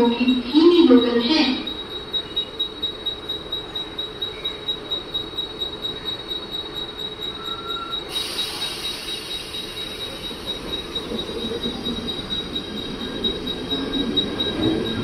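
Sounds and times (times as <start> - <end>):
steady high tone: 0.0 - 15.0
electric train pulling out: 3.7 - 15.0
hiss: 8.1 - 11.0.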